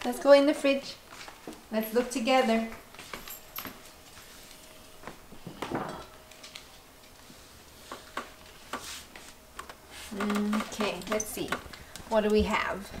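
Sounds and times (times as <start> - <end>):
footsteps on hardwood floor: 0.6 - 6.0.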